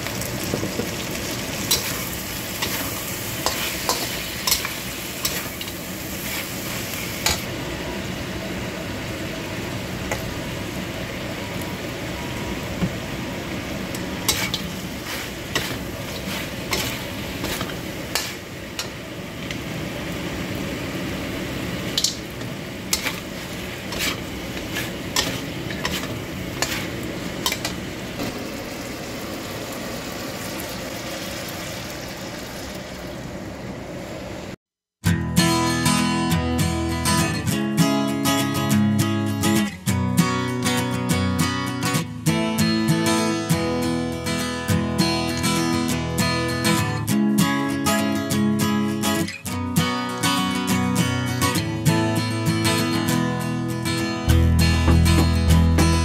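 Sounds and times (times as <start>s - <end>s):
chicken sizzling in a wok: 0.0s - 34.6s
spatula stirring and scraping: 1.7s - 7.4s, 14.2s - 19.0s, 22.0s - 27.8s
spatula clinking against wok: 23.9s - 27.8s.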